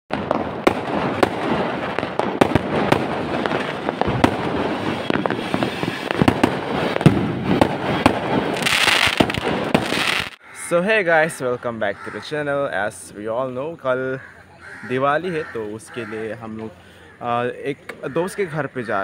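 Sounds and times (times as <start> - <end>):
fireworks bangs: 0.1 - 10.4
fireworks crackling: 0.1 - 10.4.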